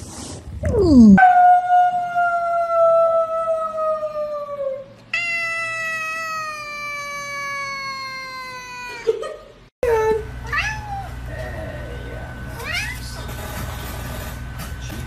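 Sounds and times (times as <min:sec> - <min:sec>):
cat meowing: 0:05.2 - 0:08.9, 0:10.5 - 0:11.2.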